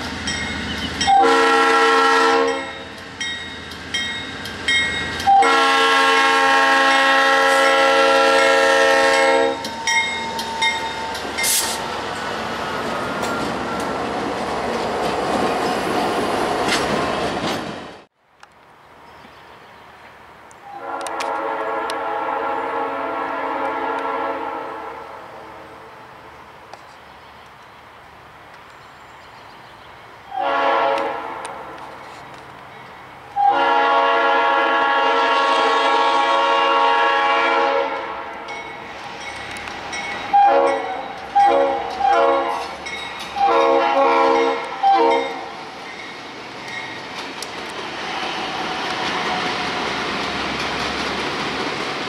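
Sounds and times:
passing train rumble: 0:00.0 - 0:52.0
locomotive air horn blasts: 0:01.1 - 0:02.8, 0:05.3 - 0:09.7, 0:20.6 - 0:25.5, 0:30.3 - 0:31.8, 0:33.4 - 0:38.4, 0:40.3 - 0:42.8, 0:43.4 - 0:45.4.

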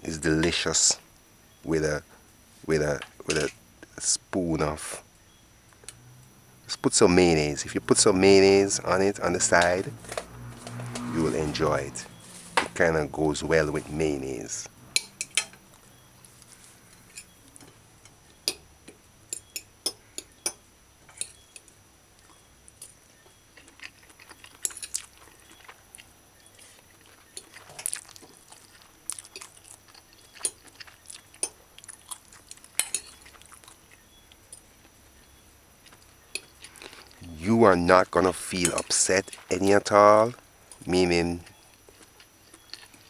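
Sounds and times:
quiet chewing: 0:14.9 - 0:20.4, 0:21.1 - 0:37.4, 0:38.6 - 0:43.0.

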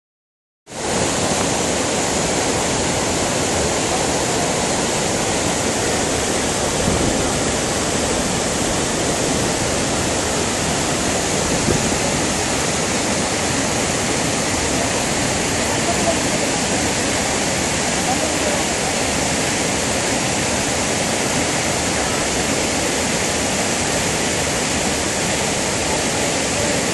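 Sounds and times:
water rushing over cascades: 0:00.7 - 0:26.9.

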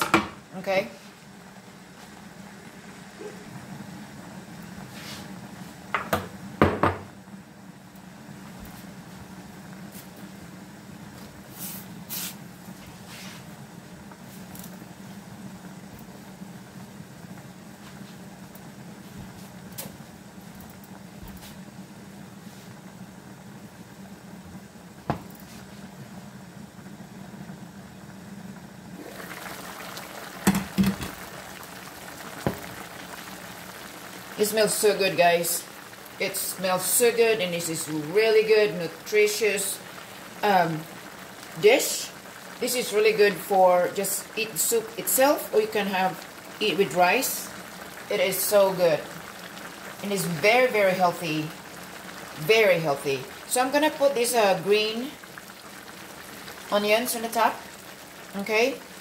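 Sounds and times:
soup simmering in a pan: 0:00.0 - 0:59.0.

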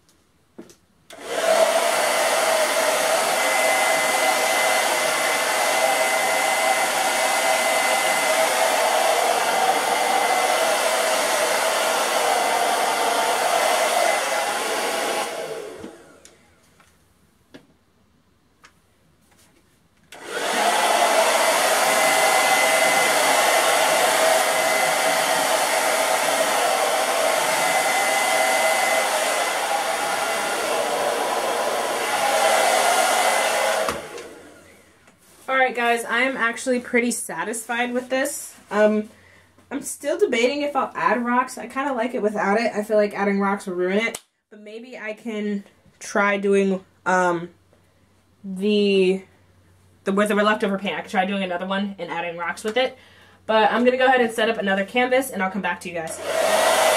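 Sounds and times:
blow dryer running: 0:01.1 - 0:16.4, 0:20.1 - 0:34.9, 0:56.1 - 0:56.9.

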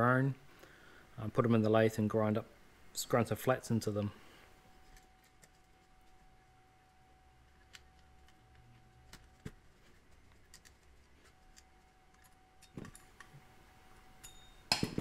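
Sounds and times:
small parts clicking and tapping: 0:07.5 - 0:13.4.

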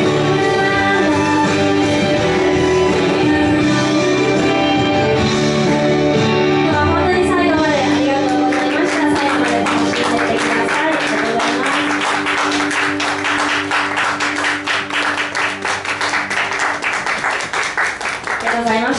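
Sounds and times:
audience clapping: 0:07.9 - 0:18.9.

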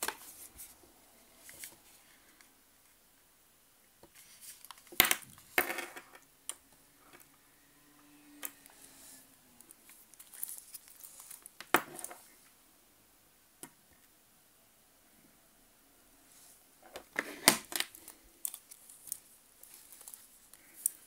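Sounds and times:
rustling: 0:16.3 - 0:21.0.

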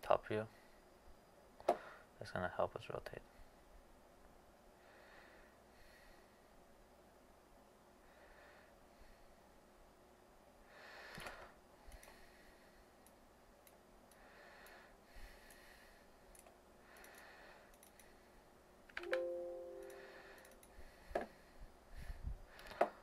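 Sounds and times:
computer mouse clicks: 0:16.3 - 0:18.1
short ringing tone: 0:19.0 - 0:20.5
breaths into microphone: 0:19.9 - 0:23.0.

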